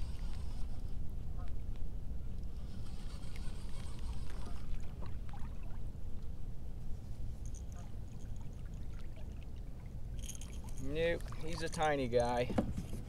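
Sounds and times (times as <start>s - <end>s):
water lapping against hull: 2.5s - 6.4s, 7.6s - 13.0s.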